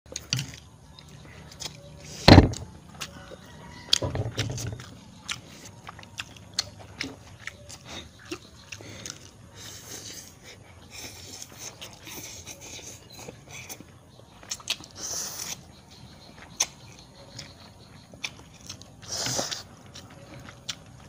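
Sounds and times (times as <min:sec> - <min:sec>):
loud thump: 0:02.2 - 0:02.7
noodles slurped and chewed: 0:16.5 - 0:21.0.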